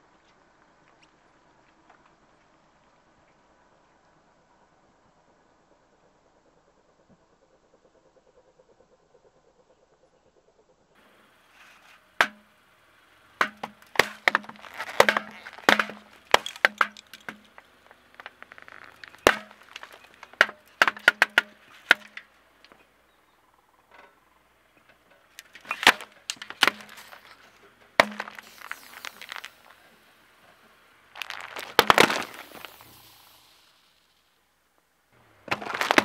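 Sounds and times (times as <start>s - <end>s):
beer cans bursting under tyre: 11.7s - 22.8s, 25.3s - 34.0s, 35.2s - 36.0s.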